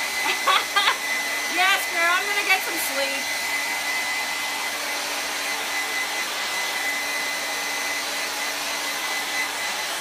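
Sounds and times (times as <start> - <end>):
hair dryer blowing: 0.0 - 10.0.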